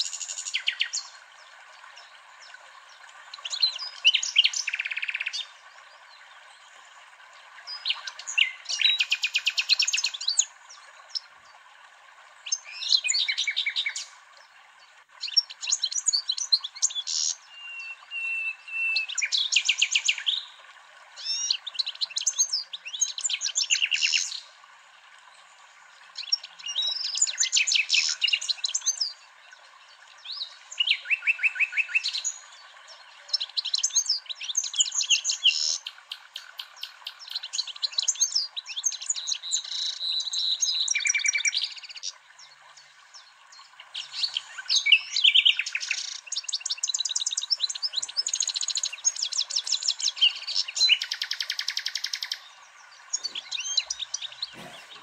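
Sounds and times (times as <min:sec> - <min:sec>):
flowing water rushing: 0:00.0 - 0:55.0
bird twittering chirps: 0:44.0 - 0:55.0.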